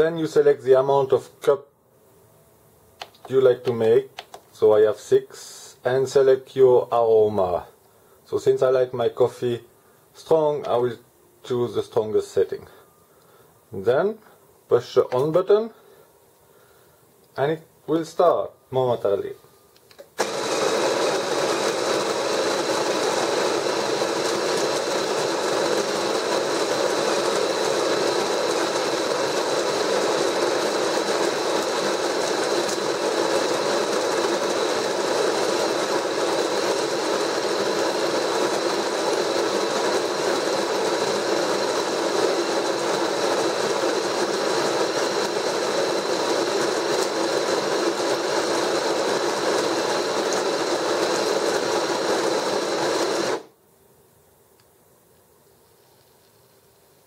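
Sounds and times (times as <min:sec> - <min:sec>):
coffee grinder grinding beans: 0:20.2 - 0:53.5.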